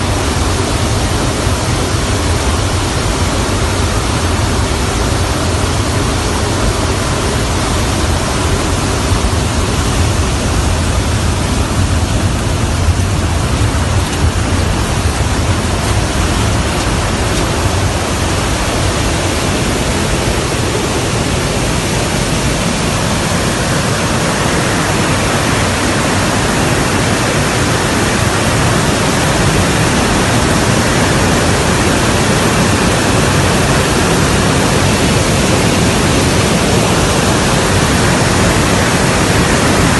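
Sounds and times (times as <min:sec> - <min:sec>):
jet aircraft cabin roar: 0:00.0 - 0:39.9.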